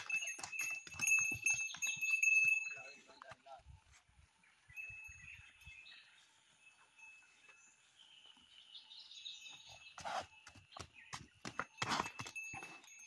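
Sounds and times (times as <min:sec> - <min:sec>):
small bell clinking: 0:00.0 - 0:03.2, 0:04.7 - 0:06.0, 0:11.6 - 0:13.0.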